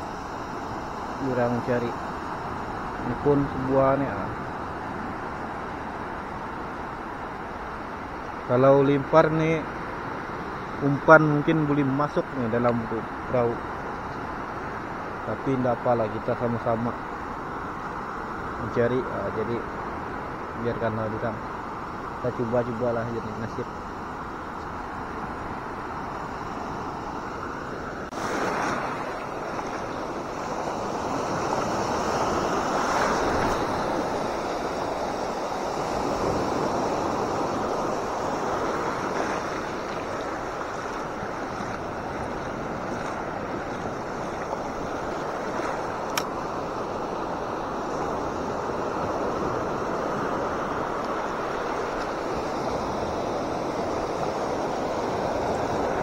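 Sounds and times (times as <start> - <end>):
ocean surf breaking on beach: 0.0 - 56.0
sharp click: 46.1 - 46.3.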